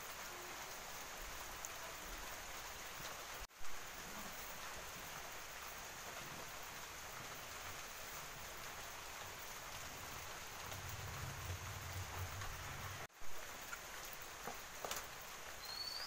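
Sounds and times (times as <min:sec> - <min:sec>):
low flame roar: 0:09.8 - 0:13.1.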